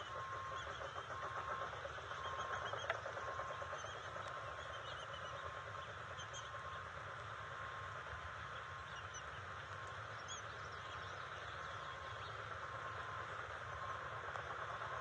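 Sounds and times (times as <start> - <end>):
songbird chirps: 8.4 - 13.2.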